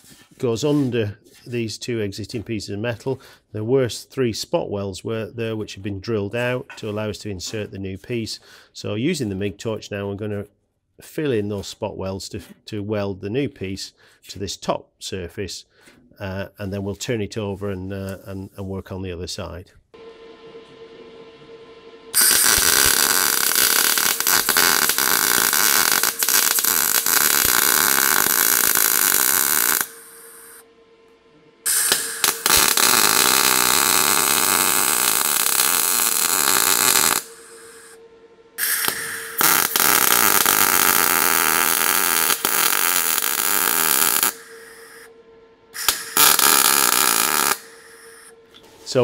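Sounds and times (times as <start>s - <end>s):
welder arc sizzling and crackling: 22.1s - 30.6s, 31.7s - 38.0s, 38.6s - 45.1s, 45.8s - 48.3s.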